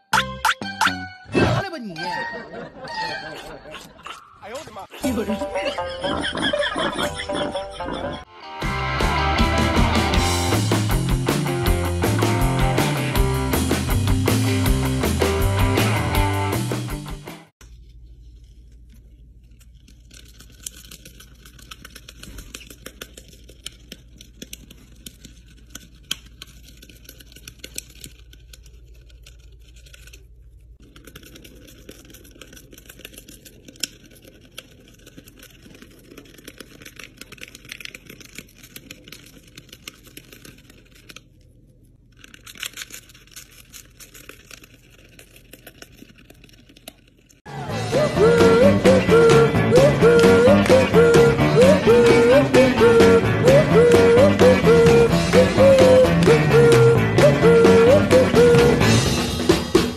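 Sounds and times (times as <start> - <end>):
bird tearing paper: 17.6 - 47.5.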